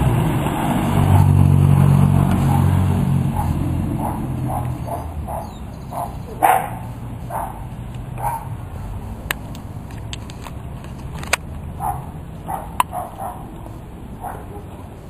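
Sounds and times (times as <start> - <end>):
wind rumble: 0.0 - 15.0
dog barking: 2.4 - 8.6, 11.8 - 13.5, 14.2 - 14.8
sharp clicks: 9.2 - 11.6.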